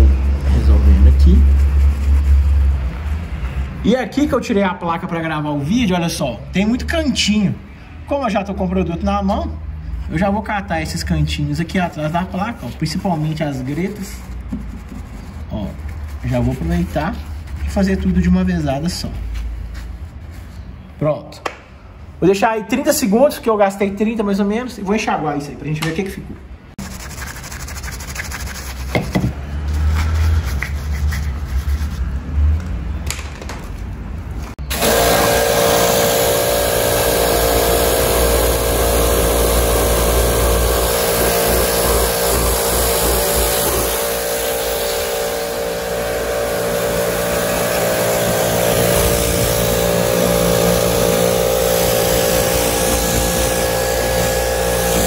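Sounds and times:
brush scrubbing: 0.0s - 3.6s, 11.5s - 20.7s, 26.8s - 32.2s, 34.8s - 55.0s
pressure washer motor hum: 34.6s - 55.0s
water jet hissing: 34.7s - 55.0s.

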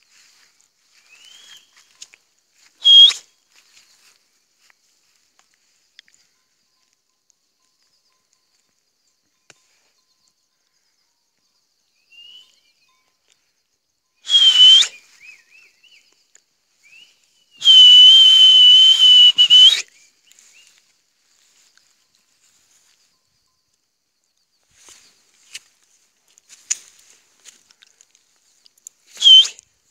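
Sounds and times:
loud high whistle: 1.1s - 1.8s, 2.8s - 3.3s, 14.2s - 15.5s, 17.0s - 20.0s, 29.2s - 29.6s
faint short chirping notes: 11.8s - 14.2s.

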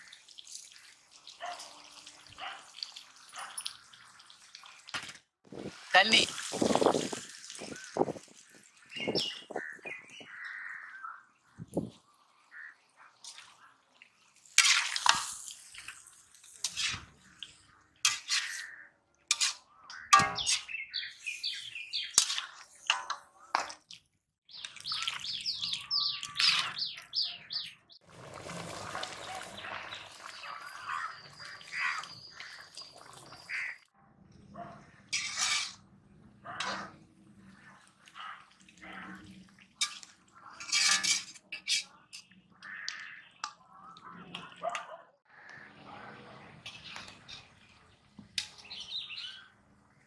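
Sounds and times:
birds chirping: 6.0s - 13.9s, 17.2s - 23.5s, 24.4s - 28.0s, 28.8s - 33.9s, 41.6s - 50.0s
metal ladle scraping a pot: 18.1s - 18.7s, 19.3s - 20.7s, 35.1s - 35.8s, 39.8s - 42.3s.

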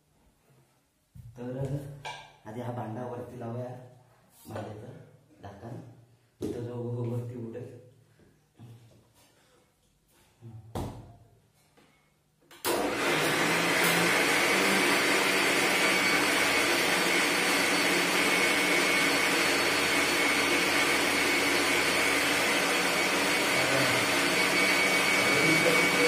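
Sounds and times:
mixer grinder whining: 12.7s - 26.0s.

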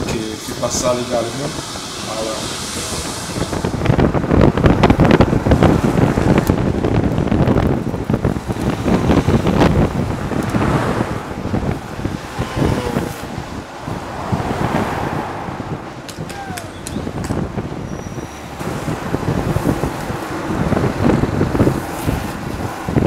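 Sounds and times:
wheels rolling on asphalt: 0.0s - 23.0s
wind buffeting microphone: 0.0s - 23.0s
sharp crackles: 6.4s - 10.9s.

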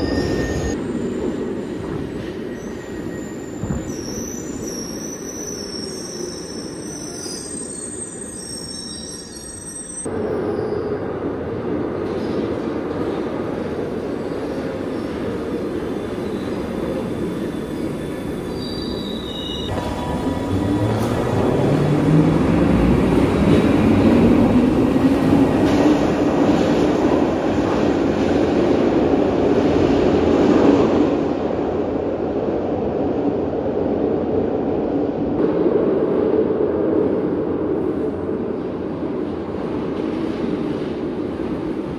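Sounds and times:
wheel squeal: 0.0s - 0.8s, 17.4s - 19.7s
subway train running on rails: 0.0s - 41.9s.

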